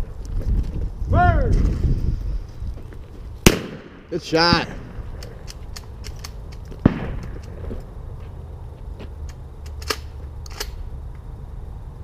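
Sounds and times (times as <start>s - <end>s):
low steady rumble: 0.0s - 12.0s
shotgun shot: 3.4s - 5.0s, 6.8s - 7.4s
faint scattered clicks: 5.2s - 7.9s, 9.2s - 11.3s.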